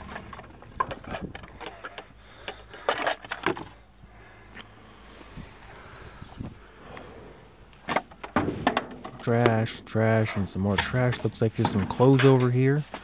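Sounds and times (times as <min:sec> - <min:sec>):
objects handled in dumpster: 0:00.0 - 0:03.9, 0:07.8 - 0:13.0.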